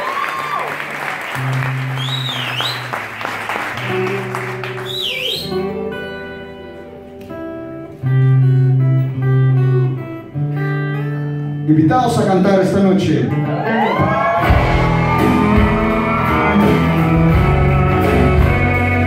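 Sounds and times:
audience cheering and whistling: 0.0s - 5.8s, 13.4s - 18.7s
acoustic guitars playing slowly: 0.4s - 19.0s.

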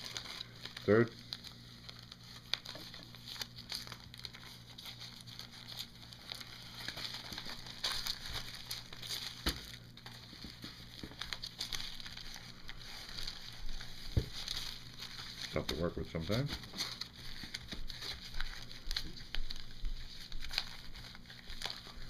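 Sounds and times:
wax paper crinkling: 0.0s - 22.0s.

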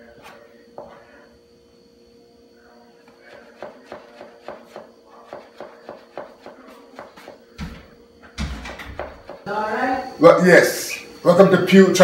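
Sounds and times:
knife chopping herbs on board: 3.3s - 7.5s, 9.0s - 9.5s.

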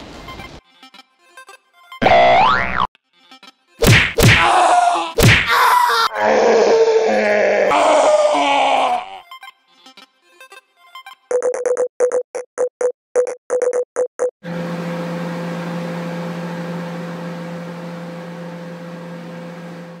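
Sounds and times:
microwave oven humming: 14.4s - 20.0s.

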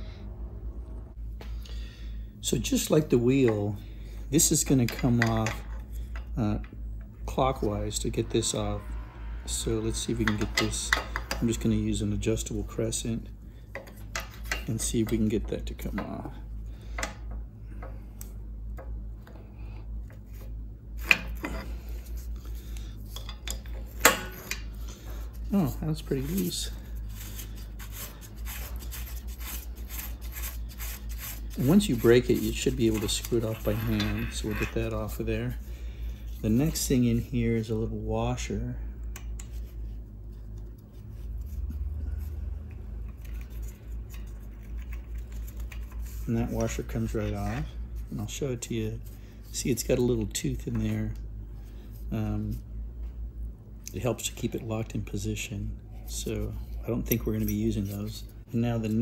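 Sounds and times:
low steady hum: 0.0s - 59.0s.

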